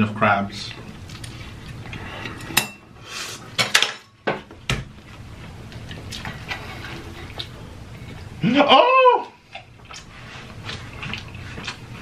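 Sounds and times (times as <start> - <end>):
eating noises: 5.7 - 12.0.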